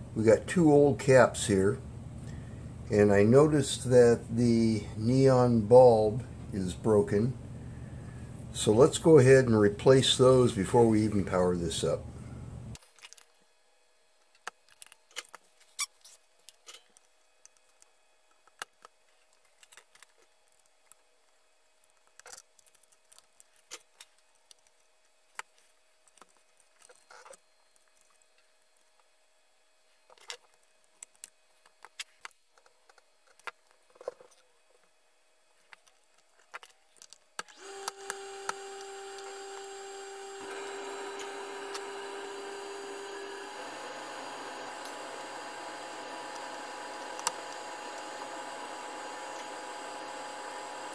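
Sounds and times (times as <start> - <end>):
steady tone with hiss: 0.0 - 12.8.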